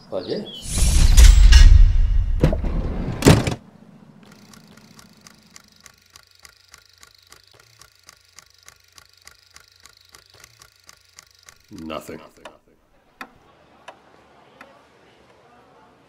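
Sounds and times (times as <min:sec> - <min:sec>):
loud sudden sound: 0:00.6 - 0:03.6
regular mechanical clicking: 0:04.2 - 0:12.6.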